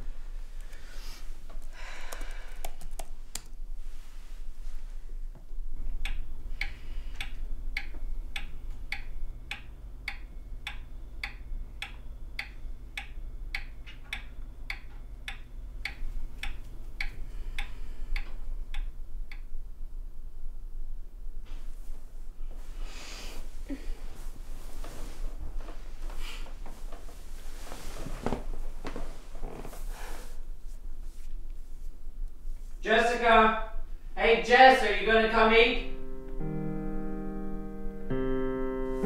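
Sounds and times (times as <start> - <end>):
low steady hum: 0.0 - 39.0
pendulum clock ticking: 5.9 - 19.7.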